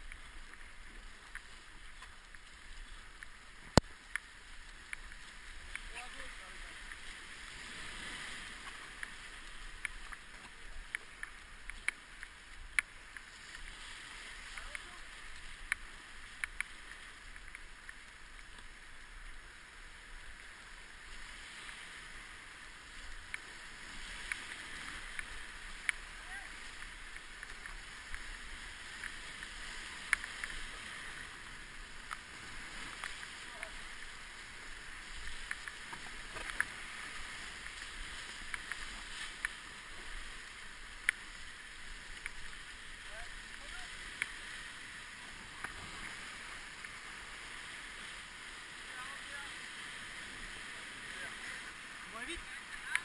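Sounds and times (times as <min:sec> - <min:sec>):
whitewater rushing: 0:00.0 - 0:53.0
paddle splashes and knocks: 0:35.0 - 0:40.2.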